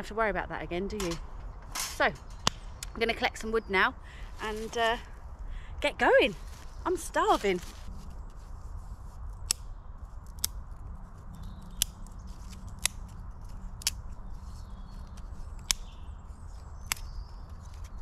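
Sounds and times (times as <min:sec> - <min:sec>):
twigs snapping: 0:02.2 - 0:03.0, 0:09.2 - 0:18.0.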